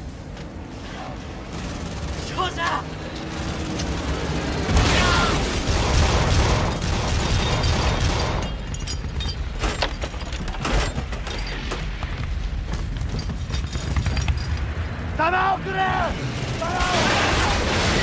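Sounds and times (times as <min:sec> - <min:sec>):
gunfire: 0:04.7 - 0:08.5.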